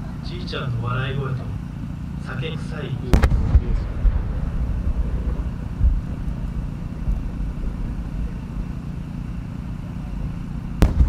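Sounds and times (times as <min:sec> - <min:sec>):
low rumble: 0:00.0 - 0:11.0
firework crack: 0:03.0 - 0:11.0
firework bang: 0:03.1 - 0:08.6, 0:10.8 - 0:11.0.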